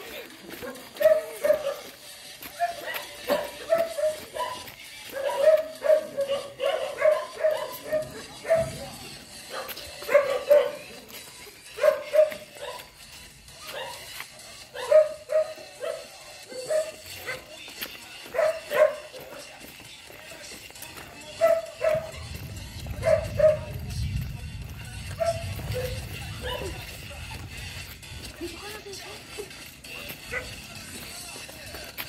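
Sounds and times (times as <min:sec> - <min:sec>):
dog barking: 0:00.6 - 0:11.0, 0:11.8 - 0:12.9, 0:13.6 - 0:17.6, 0:18.3 - 0:19.5, 0:21.4 - 0:22.3, 0:22.9 - 0:24.0, 0:25.1 - 0:26.9, 0:30.2 - 0:30.6.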